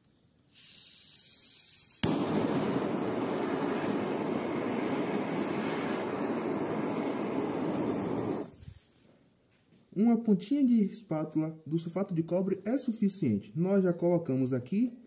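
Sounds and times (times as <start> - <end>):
gas hissing: 0.5 - 9.1
blowtorch flame rushing: 0.6 - 9.1
blowtorch igniter click: 1.9 - 8.8.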